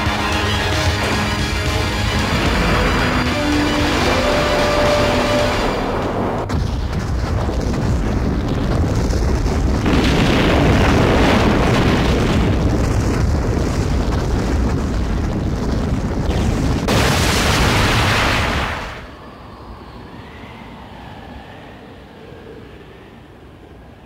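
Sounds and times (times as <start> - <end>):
explosion rumble: 0.0 - 19.1.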